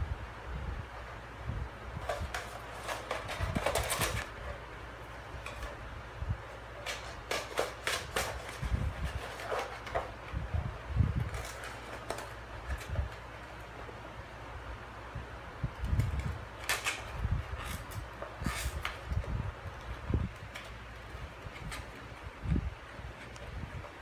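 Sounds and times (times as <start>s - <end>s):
cat scratching cardboard tube: 1.9s - 5.8s, 6.4s - 14.1s, 15.7s - 24.0s.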